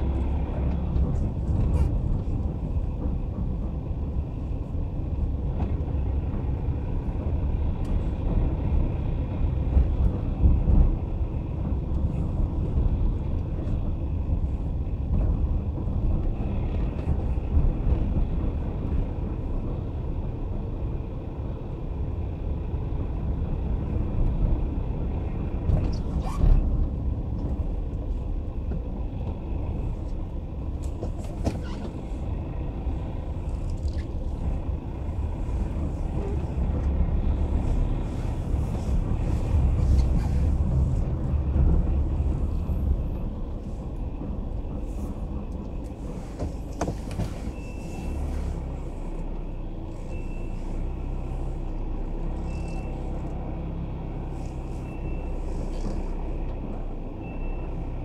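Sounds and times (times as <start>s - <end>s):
car engine and tyre rumble: 0.0s - 58.0s.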